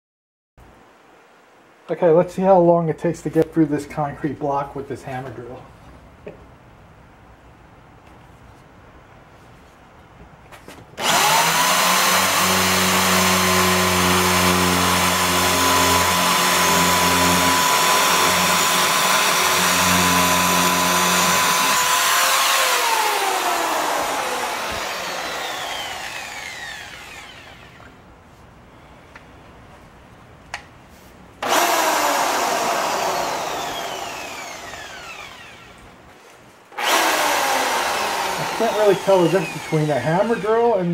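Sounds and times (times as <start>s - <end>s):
drill whining into concrete: 11.0s - 28.0s, 31.4s - 35.8s, 36.8s - 40.9s.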